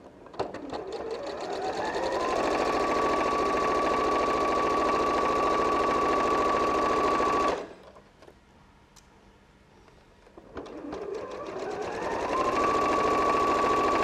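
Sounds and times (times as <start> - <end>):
electric sewing machine stitching: 0.4 - 7.8, 10.5 - 14.0.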